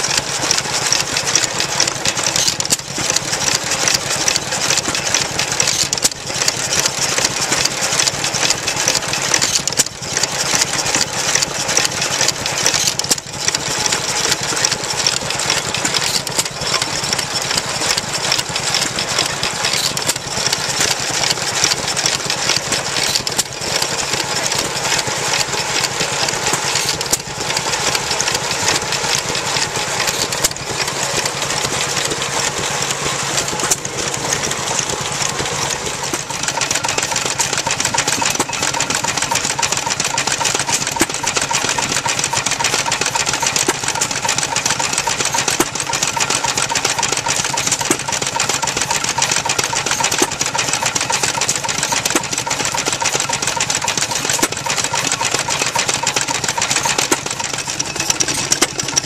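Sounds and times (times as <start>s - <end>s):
stationary engines clattering: 0.0s - 59.0s.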